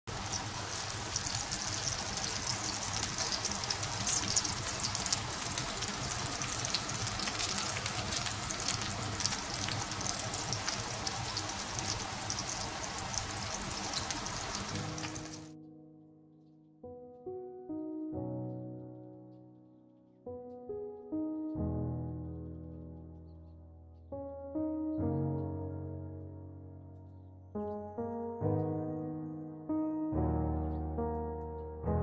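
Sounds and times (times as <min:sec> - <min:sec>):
fish sizzling in a frying pan: 0:00.1 - 0:15.5
piano music: 0:00.1 - 0:32.0.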